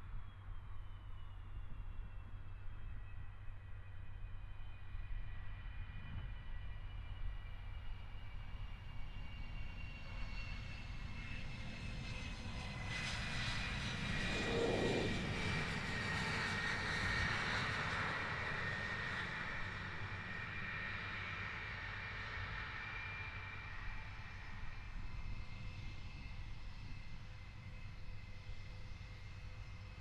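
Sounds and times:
jet engines whining: 0:10.4 - 0:28.9.

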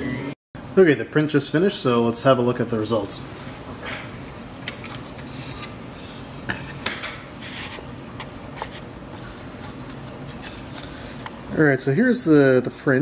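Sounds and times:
scraping and rubbing: 0:04.2 - 0:11.4.

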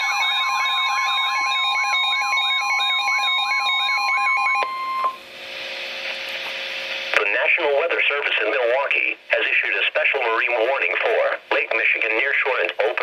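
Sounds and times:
steady high warning tone: 0:00.0 - 0:05.3
radio hiss: 0:05.4 - 0:13.0.

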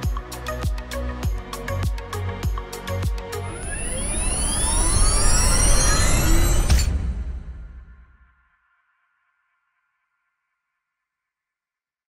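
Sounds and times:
outro music: 0:00.0 - 0:08.2
logo sound: 0:03.3 - 0:08.2.

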